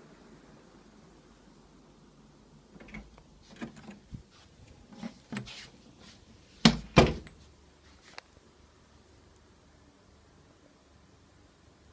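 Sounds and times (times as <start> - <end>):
wooden door clicks and knocks: 6.7 - 7.4.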